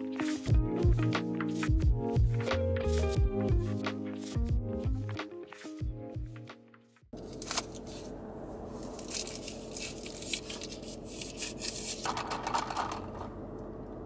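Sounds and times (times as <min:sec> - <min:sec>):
straw wrapper crinkling and tearing: 0:07.2 - 0:08.1, 0:08.7 - 0:12.1.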